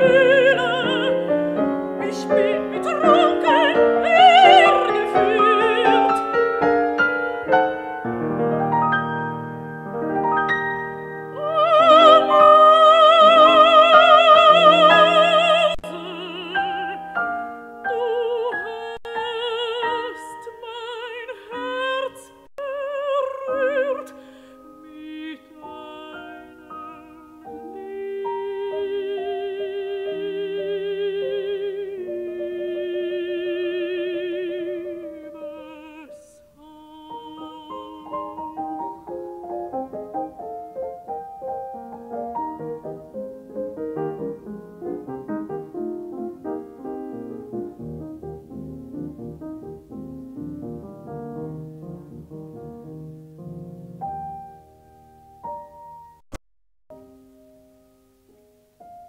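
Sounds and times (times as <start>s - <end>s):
woman singing: 0.0s - 7.0s, 11.3s - 39.7s
piano accompaniment: 0.0s - 56.3s, 56.9s - 59.0s.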